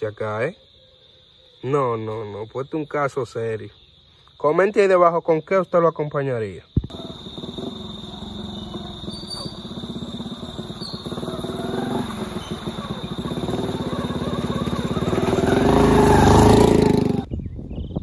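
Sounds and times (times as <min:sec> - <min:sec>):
small engine running: 0:06.9 - 0:17.3.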